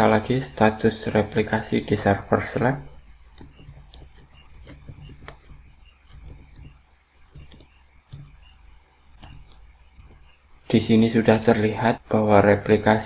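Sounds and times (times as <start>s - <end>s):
faint low hum: 0.0s - 13.0s
computer keyboard typing: 2.9s - 10.3s.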